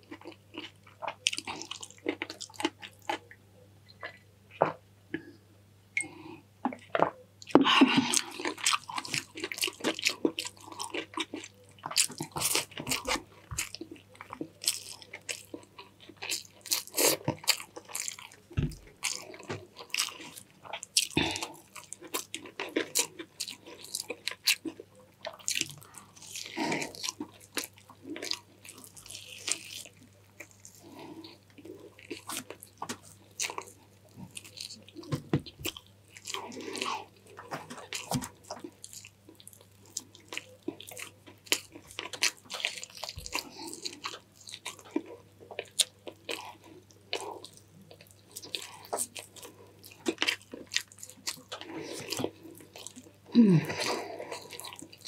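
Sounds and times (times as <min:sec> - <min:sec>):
person chewing food: 0:00.0 - 0:05.4, 0:06.0 - 0:55.0.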